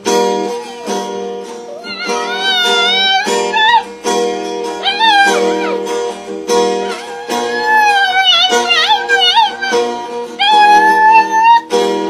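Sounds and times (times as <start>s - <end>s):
strummed acoustic guitar: 0.0s - 12.0s
dog howling: 0.2s - 3.9s, 4.8s - 11.7s.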